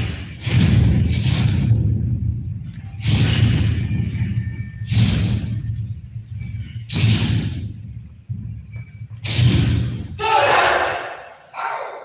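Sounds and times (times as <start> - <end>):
loud hits: 0.0 - 6.0
steady low rumble: 0.0 - 10.2.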